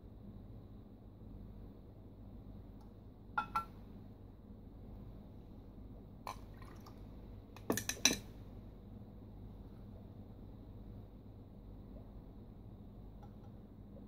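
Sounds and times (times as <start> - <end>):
glass clinks: 3.4 - 3.7.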